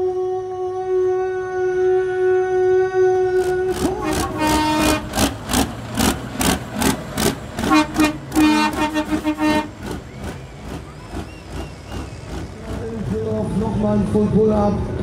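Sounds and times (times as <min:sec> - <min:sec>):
truck air horns honking: 0:02.1 - 0:05.7, 0:06.8 - 0:10.7.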